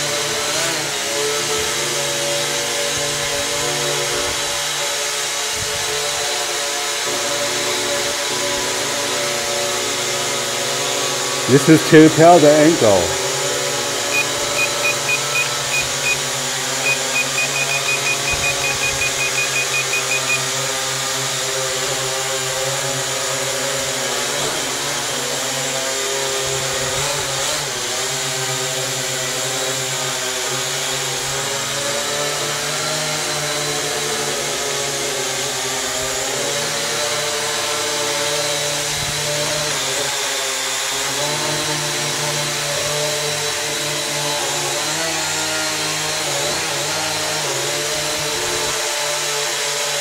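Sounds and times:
quadcopter buzzing: 0.0 - 50.0
short high electronic beeps: 14.1 - 20.5.

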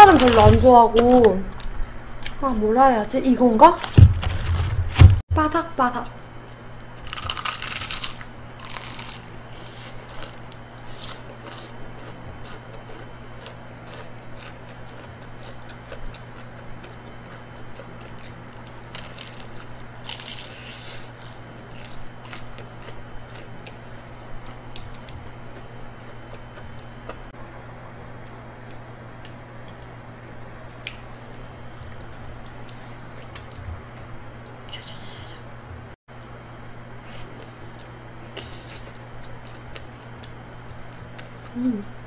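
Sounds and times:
crackling chewing: 6.9 - 27.3, 37.1 - 41.6
crunchy bites into fried chicken: 7.0 - 23.8.

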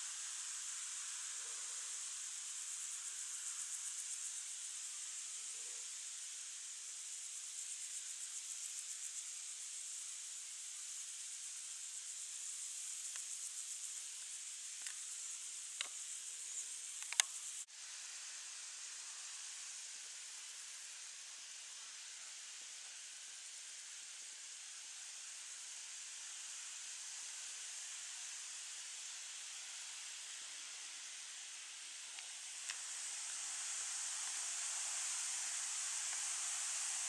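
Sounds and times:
insects stridulating: 0.0 - 37.0
faint ticks: 13.0 - 13.4, 14.1 - 17.6, 32.1 - 33.5, 36.0 - 36.4.

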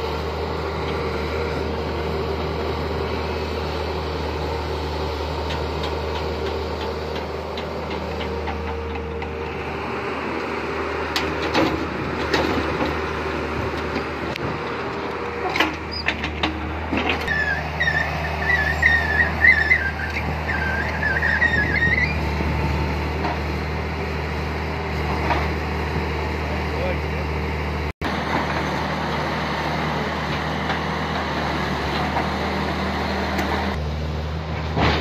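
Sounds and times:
excavator diesel engine running: 0.0 - 35.0
high wavering squeal: 17.3 - 22.4
excavator knocks working earth: 34.7 - 35.0.

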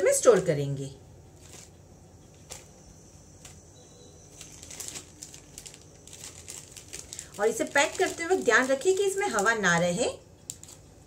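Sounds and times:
plastic bag crinkling: 1.3 - 2.8, 4.3 - 11.0.

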